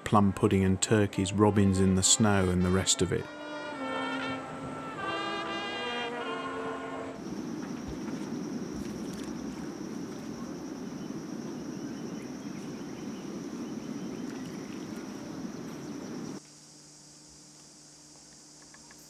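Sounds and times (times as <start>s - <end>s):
insects buzzing: 5.0s - 19.0s
faint low hum: 7.2s - 16.4s
low rumbling noise: 7.2s - 16.4s.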